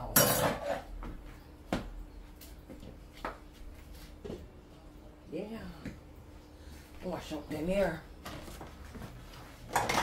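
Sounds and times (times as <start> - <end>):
metal cookware clanking: 0.0 - 0.9, 9.7 - 10.0
faint steady hum: 0.0 - 10.0.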